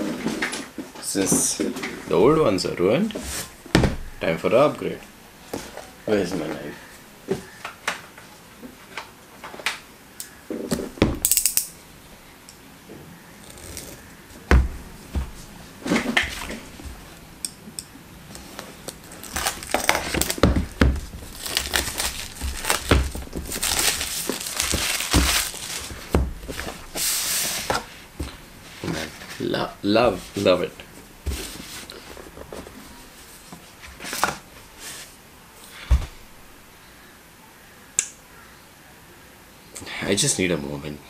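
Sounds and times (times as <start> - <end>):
plastic wrap crinkling and tearing: 18.4 - 27.0.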